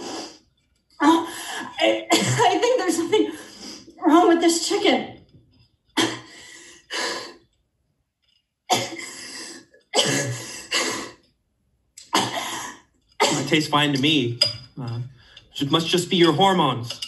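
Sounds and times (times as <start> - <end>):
woman coughing harshly: 1.6 - 3.3, 6.0 - 6.3, 8.7 - 9.3, 9.9 - 11.2, 12.0 - 13.7.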